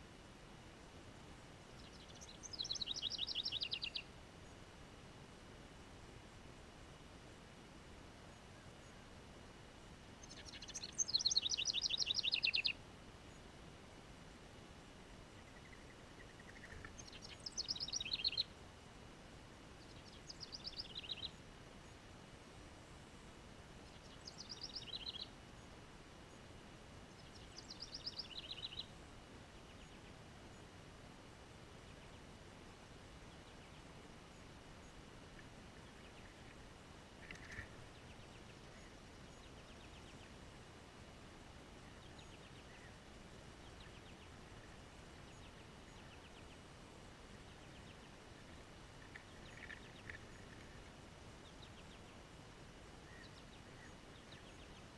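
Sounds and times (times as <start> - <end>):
distant songbird trills: 1.7 - 4.6, 10.2 - 13.5, 15.1 - 18.6, 19.7 - 22.1, 22.9 - 30.7, 33.2 - 40.6, 41.7 - 54.9
wren singing trills: 1.8 - 4.1, 10.2 - 12.8, 15.4 - 18.5, 19.8 - 21.4, 23.8 - 25.3, 27.2 - 28.9.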